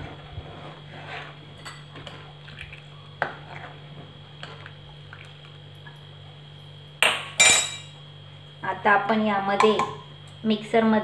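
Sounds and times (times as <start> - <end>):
milk swishing in pan: 0.0 - 5.5.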